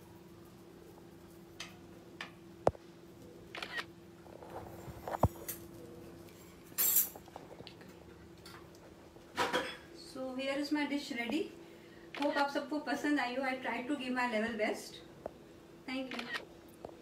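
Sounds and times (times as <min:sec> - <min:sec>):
faint steady hum: 0:00.0 - 0:17.0
cutlery clinking on a plate: 0:06.8 - 0:07.2.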